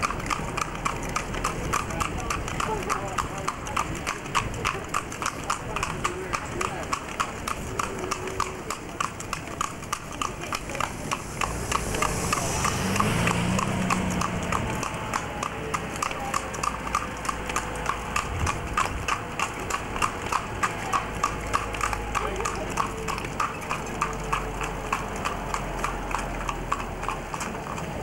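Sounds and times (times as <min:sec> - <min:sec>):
hooves clip-clopping on tarmac: 0:00.0 - 0:28.0
low rumble: 0:10.1 - 0:15.2.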